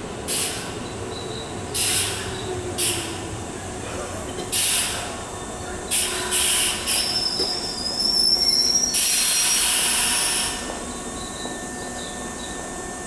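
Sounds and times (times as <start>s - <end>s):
air brake hissing: 1.8s - 3.2s, 8.9s - 10.7s
train brake squeal: 5.9s - 12.7s.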